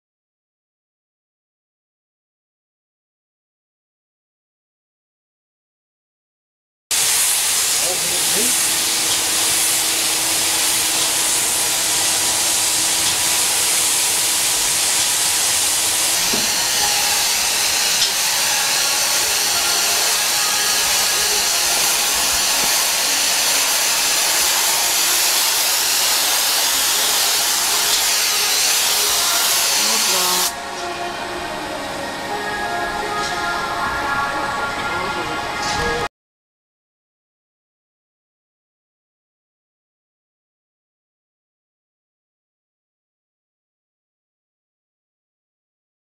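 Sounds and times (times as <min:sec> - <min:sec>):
paint spray gun hissing: 0:06.9 - 0:30.6.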